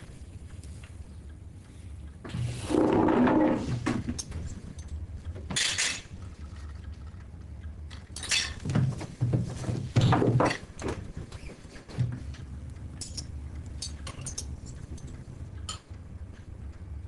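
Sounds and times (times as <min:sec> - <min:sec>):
cutlery and plates clattering: 0:05.5 - 0:06.1, 0:08.2 - 0:08.8.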